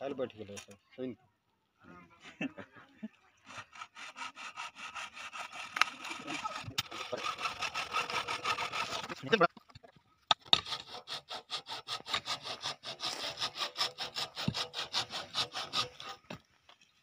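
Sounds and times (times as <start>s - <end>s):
facing tool rasping plastic pipe: 3.4s - 9.3s, 10.3s - 16.4s.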